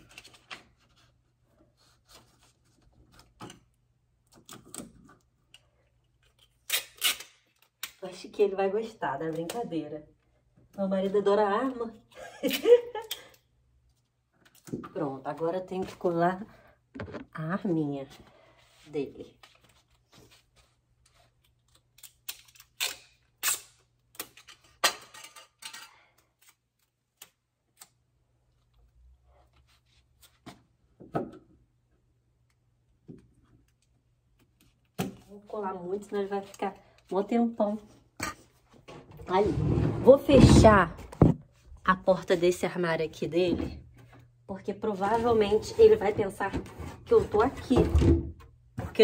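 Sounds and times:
tape ripping: 6.4 - 8.0, 21.6 - 24.5.

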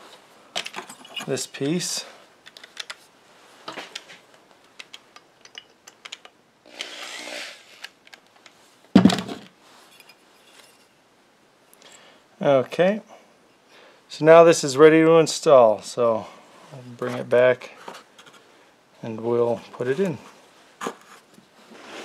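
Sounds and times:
screwdriver clicks and scrapes: 4.8 - 8.5.

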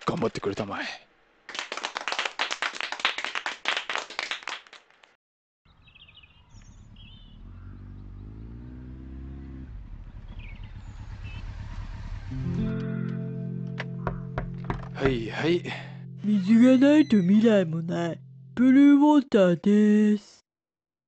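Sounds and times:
small group applauding: 1.5 - 5.2
high bird chirps: 5.7 - 8.6, 10.3 - 11.5, 16.3 - 17.8
low hum: 15.5 - 19.0.

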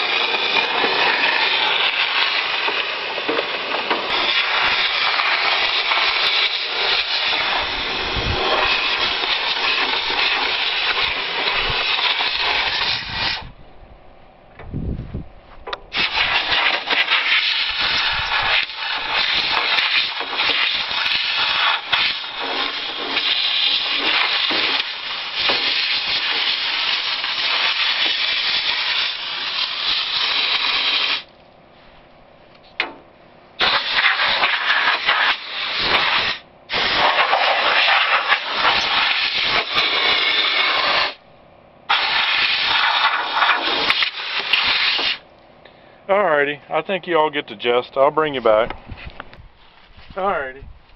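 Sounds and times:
compressed air hissing: 0.0 - 13.6, 15.9 - 31.3, 33.6 - 41.2, 41.9 - 45.2.

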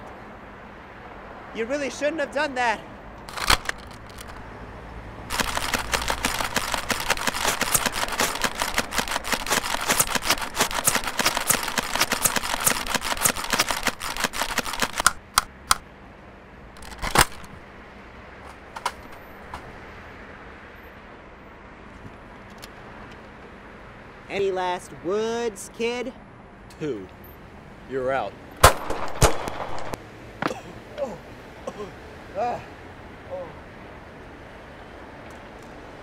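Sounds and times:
toy dart blaster firing: 5.3 - 15.2.

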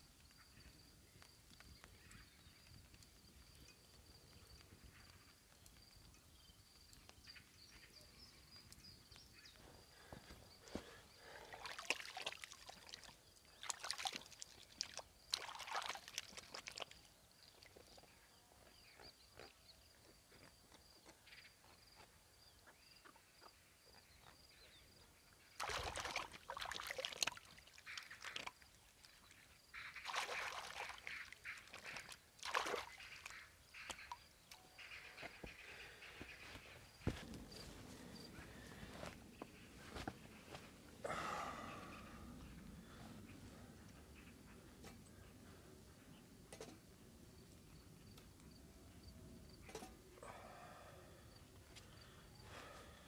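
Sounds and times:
crickets chirping: 0.0 - 43.3, 46.7 - 53.0
handling noise with sloshing: 11.5 - 18.0, 25.6 - 29.0, 29.8 - 34.2.

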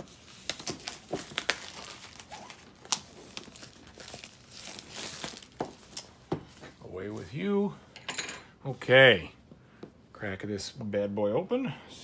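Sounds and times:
plastic wrap crinkling: 0.0 - 6.2.

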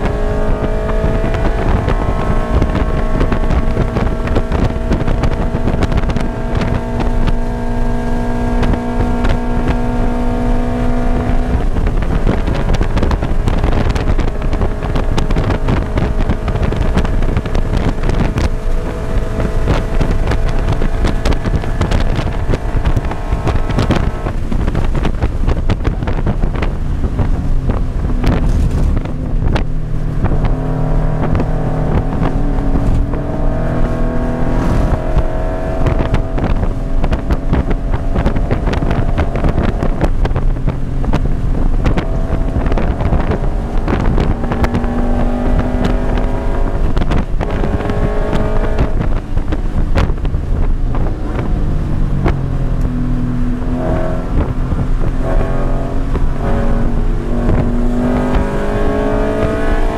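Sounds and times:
car engine revving: 0.0 - 59.9
wind and road noise: 0.0 - 59.9.

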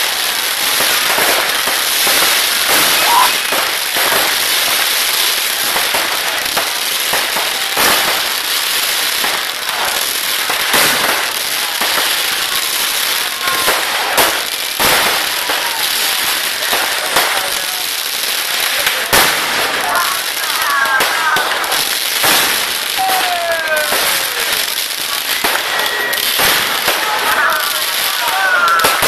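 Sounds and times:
firecracker bangs: 0.0 - 29.0
fireworks crackling: 0.0 - 29.0.

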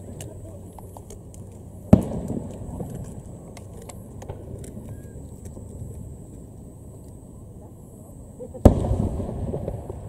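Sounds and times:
low outdoor rumble: 0.0 - 10.0
distant firework pops: 1.0 - 6.4, 8.6 - 10.0.

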